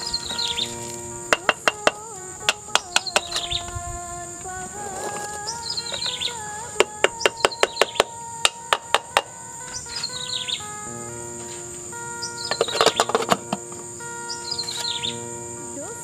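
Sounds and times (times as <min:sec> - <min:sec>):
background music of sustained notes: 0:00.0 - 0:16.0.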